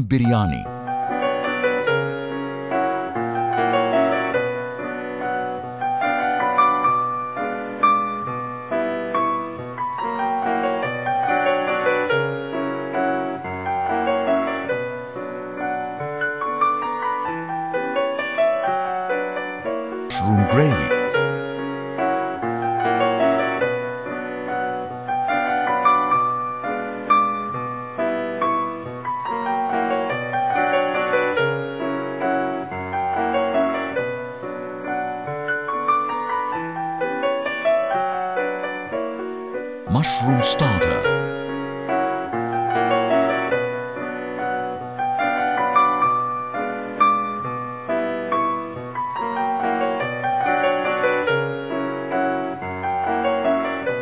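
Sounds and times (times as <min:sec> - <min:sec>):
keyboard music: 0:00.0 - 0:00.7.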